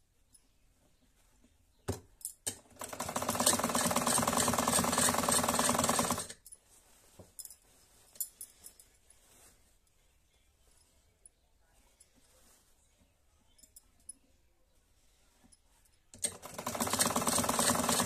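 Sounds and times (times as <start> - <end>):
sewing machine clatter: 2.5 - 6.4, 16.1 - 18.0.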